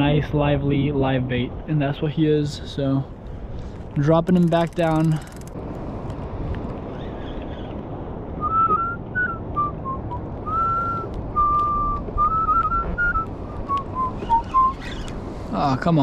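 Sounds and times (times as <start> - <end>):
person whistling a tune: 8.4 - 14.7.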